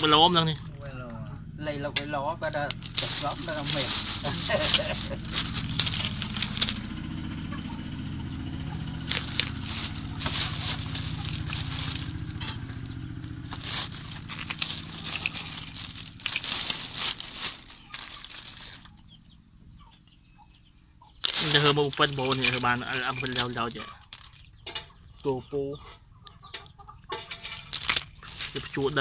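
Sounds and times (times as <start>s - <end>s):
plastic bag rustling: 0.0s - 0.7s, 2.7s - 7.0s, 8.8s - 19.0s, 21.2s - 24.5s, 27.2s - 29.0s
low steady hum: 0.0s - 25.2s
small stones clattering: 2.7s - 7.0s, 8.9s - 19.0s, 21.2s - 24.9s, 27.1s - 29.0s.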